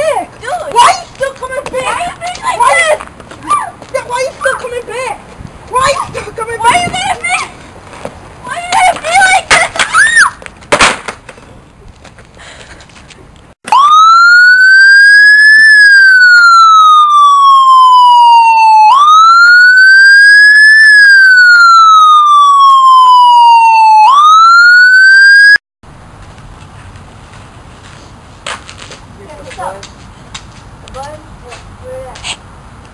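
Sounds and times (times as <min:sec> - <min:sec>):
electronic siren wailing: 0:13.7 - 0:25.6.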